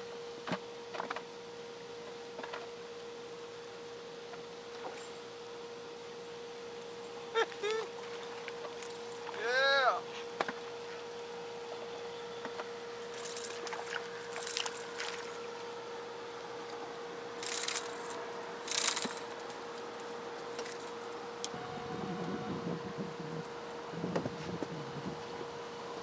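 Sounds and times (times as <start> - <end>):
steady hum: 0.0 - 26.0
fish splashing and rustling: 13.2 - 15.6.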